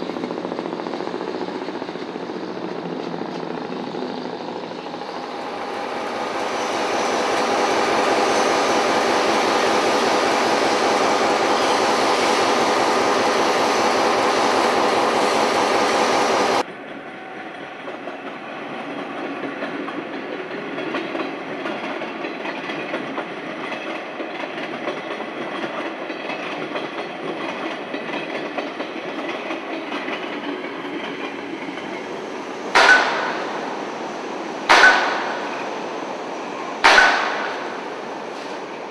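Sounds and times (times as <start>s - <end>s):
freight train rumbling past: 0.0s - 38.9s
train engines droning: 0.0s - 38.9s
wheels clicking over rail joints: 17.8s - 33.7s.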